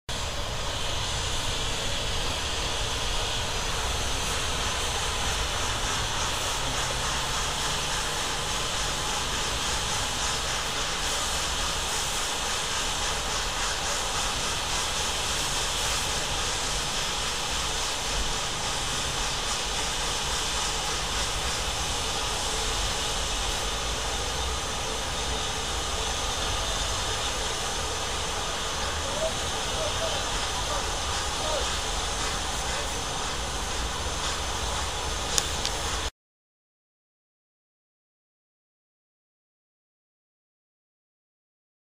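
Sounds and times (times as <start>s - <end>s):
steam locomotive hissing steam: 0.1s - 36.1s.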